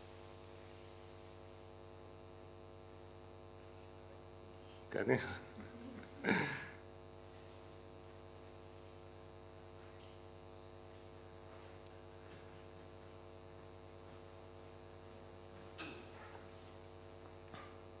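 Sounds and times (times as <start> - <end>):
electrical mains hum: 0.0 - 18.0
person speaking a word: 4.9 - 6.0.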